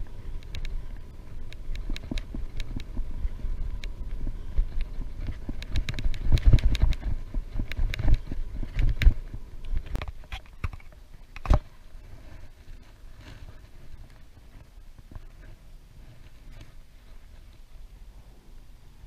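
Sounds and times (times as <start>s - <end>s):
bicycle rattling and knocking: 0.0s - 11.8s
wind rumbling on microphone: 0.0s - 19.0s.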